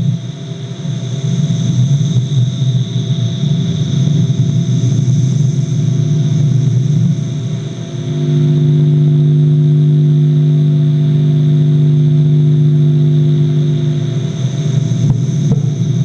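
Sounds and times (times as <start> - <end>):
low droning chord: 5.6 - 16.0.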